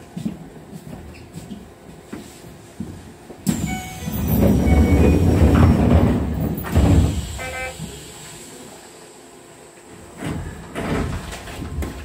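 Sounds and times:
train rumble: 2.8 - 9.2
rush of air from train doors: 3.4 - 9.3
short beeping tones: 3.6 - 5.2.

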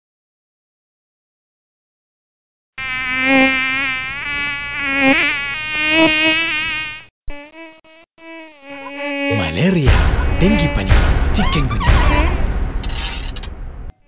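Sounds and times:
mosquito whining: 2.8 - 12.4.

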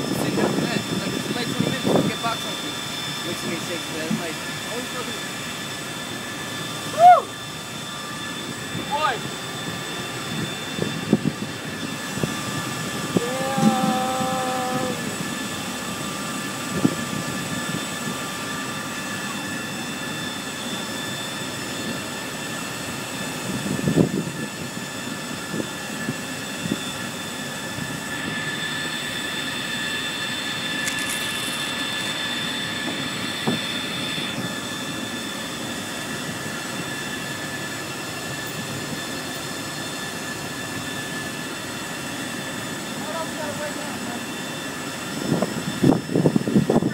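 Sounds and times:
machinery noise: 0.0 - 16.0, 28.0 - 35.3
thin high whine: 1.3 - 17.8, 27.8 - 39.8.

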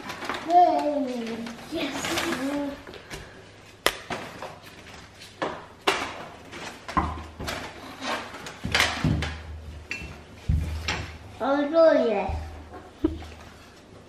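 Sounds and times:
rustling: 0.0 - 5.5.

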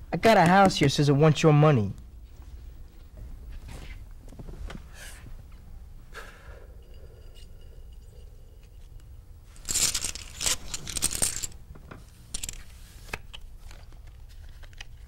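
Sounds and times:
poker chips clattering: 9.5 - 11.6, 12.3 - 12.7.

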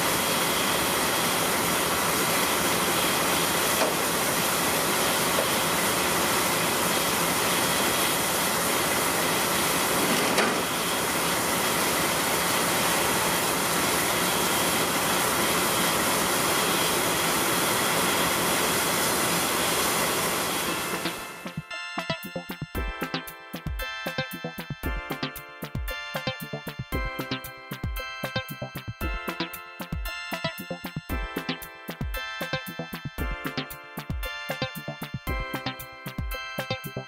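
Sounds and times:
steam venting hiss: 0.0 - 21.2.

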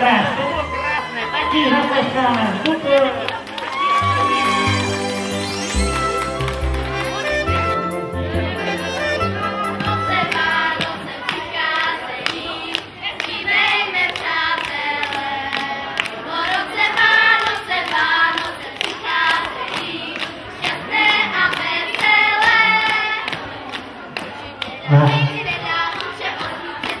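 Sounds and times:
children clapping along: 2.3 - 27.0
children singing: 6.9 - 23.3.

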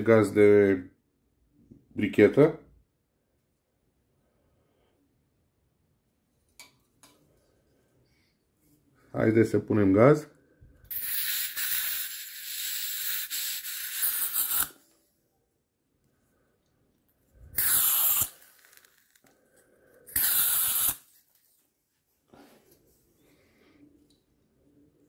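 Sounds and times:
butane gas hissing: 10.9 - 14.8, 17.4 - 19.4, 20.1 - 21.2.

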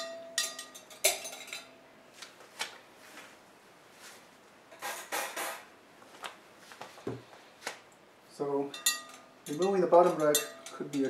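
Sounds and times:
metal tongs clinking on rack: 0.0 - 1.7, 8.7 - 11.0.

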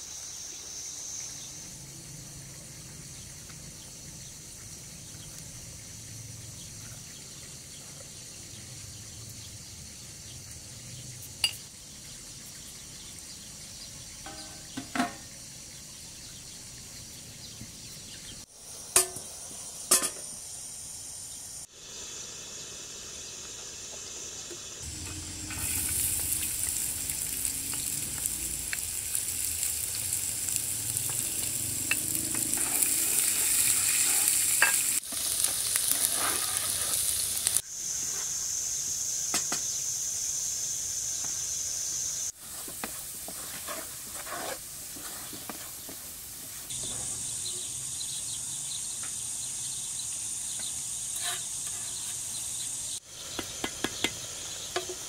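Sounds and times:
garlic sizzling in hot oil: 9.8 - 17.1, 18.3 - 55.0.

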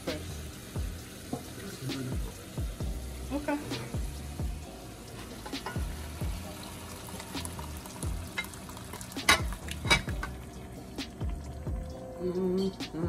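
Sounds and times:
spoon clanking against pot: 5.4 - 5.9, 8.3 - 10.4.

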